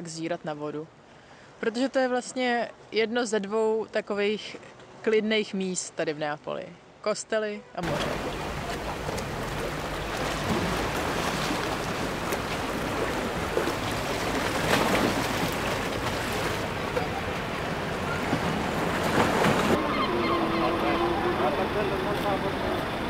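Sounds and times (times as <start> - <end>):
sea water splashing against rocks: 7.8 - 19.8.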